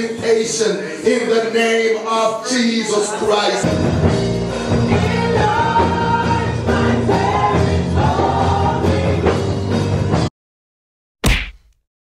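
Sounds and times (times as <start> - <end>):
band accompaniment: 3.6 - 10.3
women singing gospel: 4.9 - 9.3.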